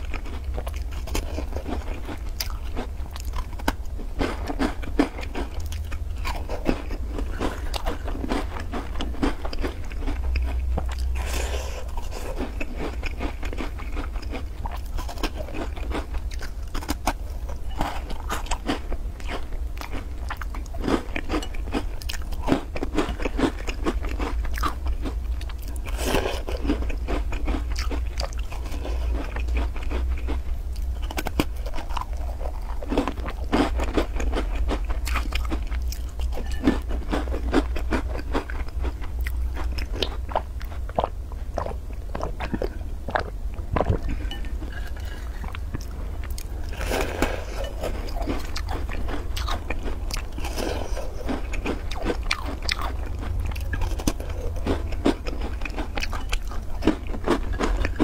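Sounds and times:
chewing crunchy cookies: 0:00.0 - 0:58.0
low hum: 0:34.2 - 0:58.0.

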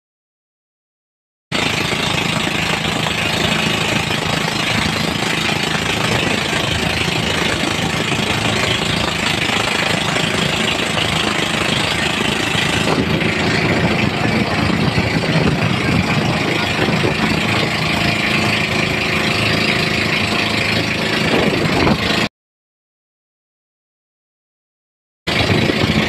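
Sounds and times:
boat engine running: 0:01.5 - 0:22.3, 0:25.3 - 0:26.0
wind and water rushing: 0:01.6 - 0:22.3, 0:25.3 - 0:26.0.

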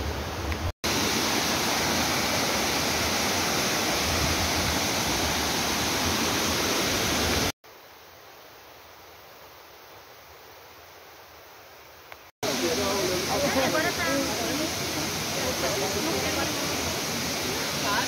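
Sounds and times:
waterfall rushing: 0:00.0 - 0:07.6, 0:12.4 - 0:18.0.

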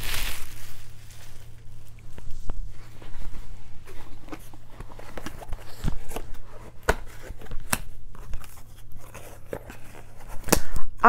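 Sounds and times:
cardboard box handling: 0:02.7 - 0:10.5.

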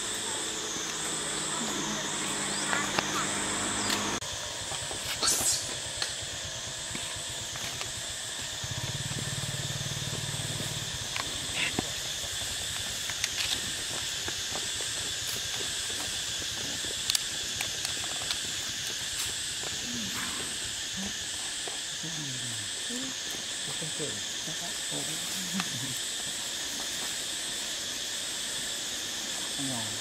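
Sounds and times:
high-pitched insect chorus: 0:00.0 - 0:30.0.

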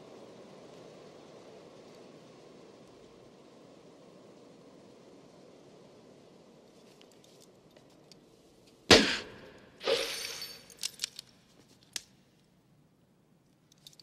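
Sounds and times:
sudden loud bang: 0:08.9 - 0:09.6
crash with metallic ring: 0:08.9 - 0:10.7.

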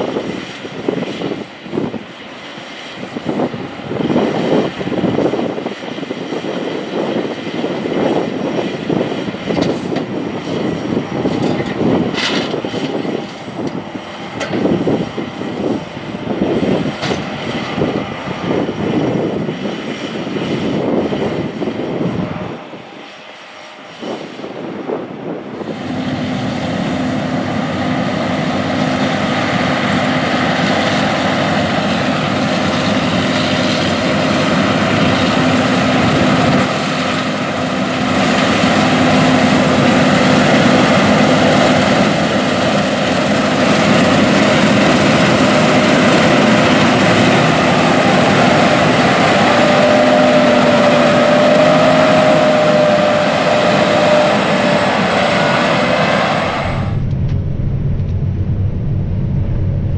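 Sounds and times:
combine harvester drone: 0:00.0 - 0:59.9
faint steady whine: 0:56.4 - 0:59.9.

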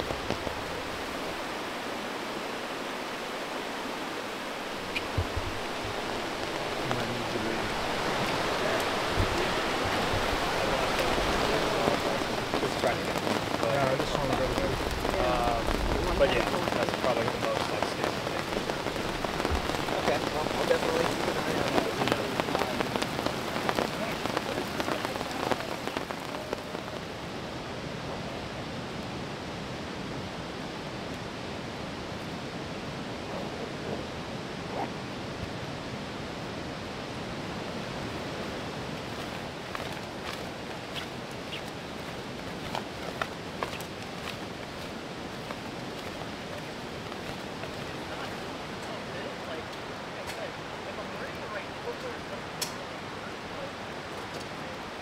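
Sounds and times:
rain pattering: 0:00.0 - 0:55.0
rushing water: 0:00.0 - 0:55.0
low thuds: 0:05.0 - 0:11.1.

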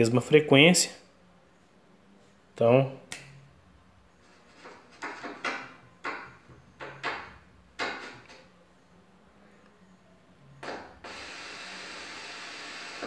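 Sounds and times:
faint low hum: 0:05.7 - 0:13.0.

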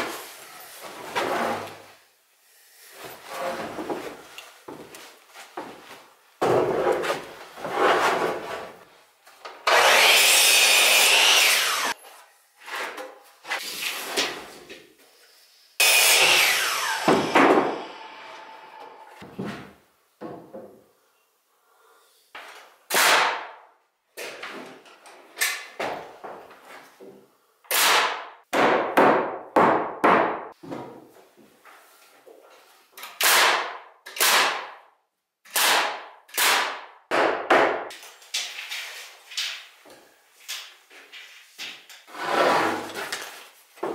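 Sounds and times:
hammer driving nails into wood: 0:27.7 - 0:30.5, 0:33.1 - 0:34.8, 0:35.5 - 0:37.9.

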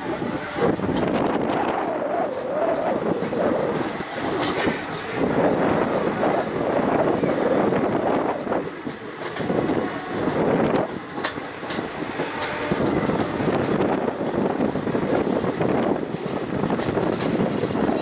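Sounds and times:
train wheels rumbling on rail: 0:00.0 - 0:18.0
wind noise on microphone: 0:00.0 - 0:18.0.

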